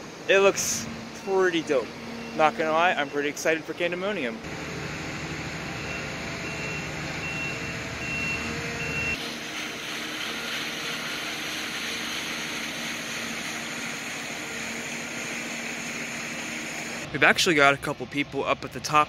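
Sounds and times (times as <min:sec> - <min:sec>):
distant machinery hum: 0:00.0 - 0:19.0
reversing alarm beeping: 0:01.2 - 0:04.0, 0:05.6 - 0:09.2.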